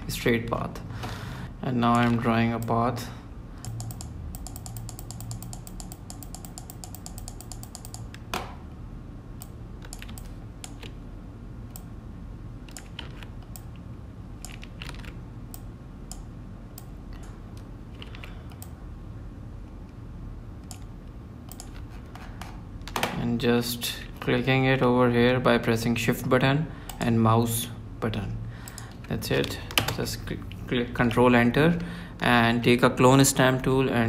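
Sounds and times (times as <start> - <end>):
steady low hum: 0.0 - 34.0
mouse and keyboard clicks: 3.6 - 8.2, 9.4 - 11.0, 12.7 - 13.7, 14.4 - 16.3, 21.5 - 22.0.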